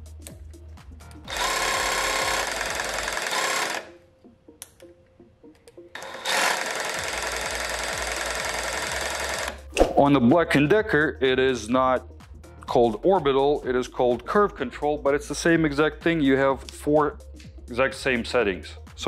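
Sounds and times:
cordless jigsaw running: 1.3s - 4.0s, 6.0s - 9.7s.

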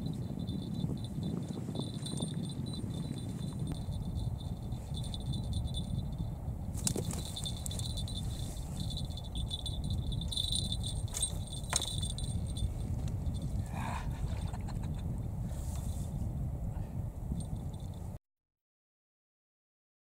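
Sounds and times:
insect trill: 0.0s - 15.4s
wind rumbling on microphone: 0.0s - 18.2s.

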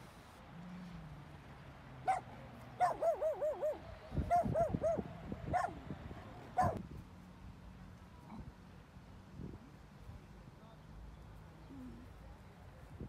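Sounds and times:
small dog yapping: 2.8s - 5.0s, 6.6s - 6.8s.

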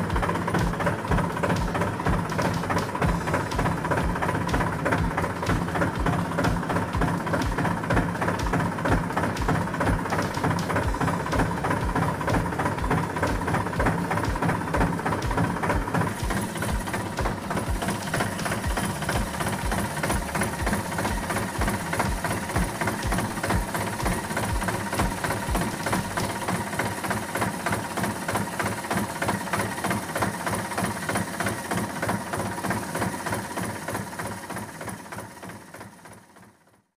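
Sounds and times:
tractor engine idling: 0.0s - 36.6s.

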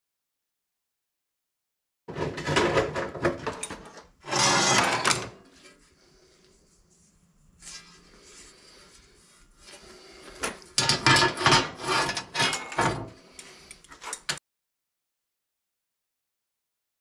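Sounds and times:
metal clattering and scraping: 2.1s - 5.8s, 10.4s - 13.2s.

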